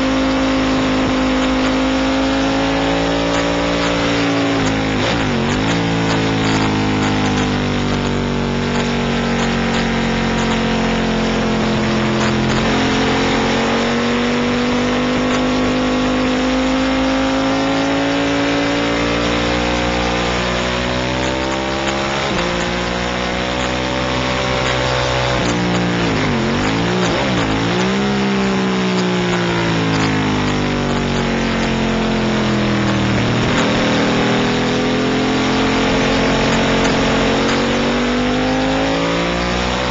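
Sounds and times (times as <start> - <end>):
motorcycle engine revving high: 0.0 - 39.9.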